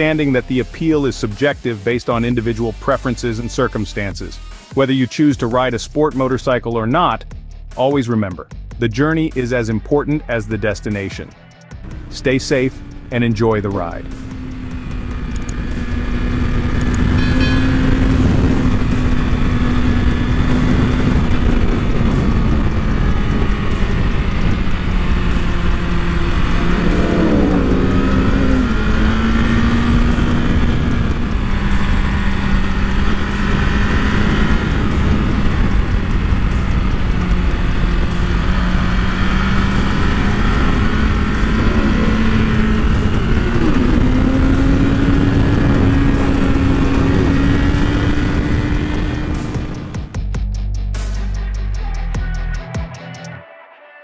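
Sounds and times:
motorcycle engine running: 11.6 - 52.8
wind and road rush: 11.8 - 50.2.

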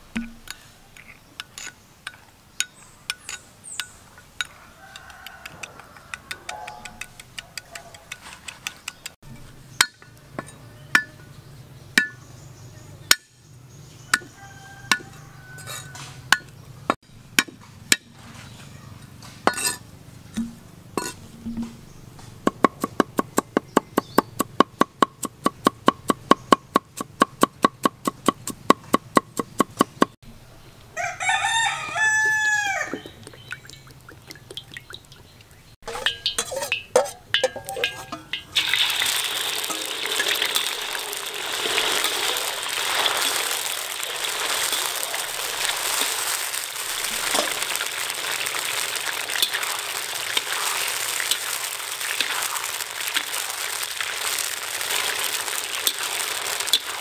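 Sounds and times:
rooster crowing: 4.5 - 7.0, 14.1 - 16.3, 31.0 - 33.2
cleaver chopping on wooden board: 22.5 - 30.2.

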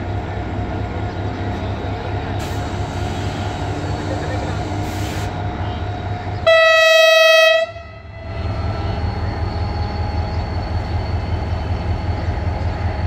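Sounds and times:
diesel engine rumble: 0.0 - 6.7
locomotive horn blast: 6.4 - 8.3.

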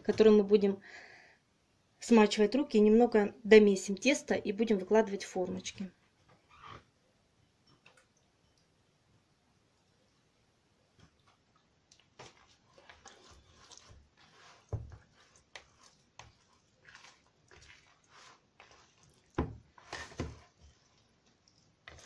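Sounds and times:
hands kneading wet dough: 10.8 - 22.0
dough thumps: 19.4 - 20.5.

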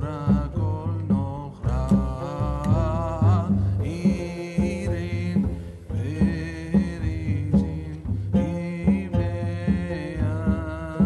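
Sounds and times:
steady bass line: 0.0 - 11.0
sustained melody: 0.1 - 11.0.

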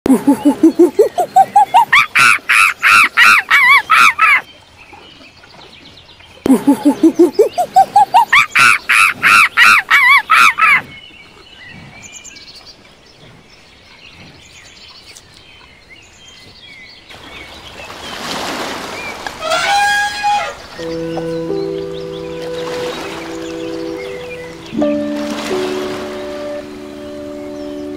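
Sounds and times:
monkey hooting: 0.1 - 4.4, 6.5 - 10.8
elephant splashing in water: 17.1 - 21.0, 22.4 - 26.8
elephant trumpeting: 19.4 - 21.0.

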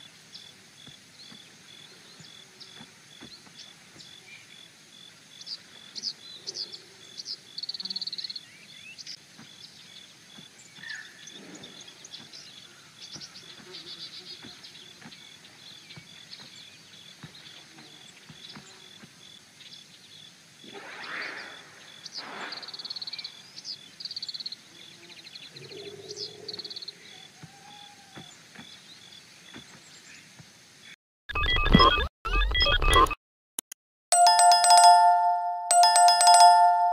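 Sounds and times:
pulsing high call: 34.1 - 36.9.

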